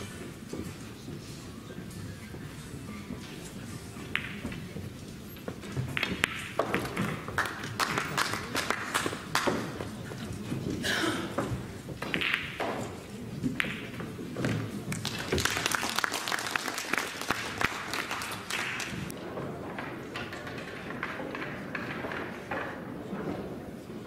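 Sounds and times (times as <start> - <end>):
pool balls clicking together: 4.0 - 4.6, 5.4 - 15.6, 17.7 - 22.7
spectators clapping: 6.8 - 9.9, 14.9 - 19.1.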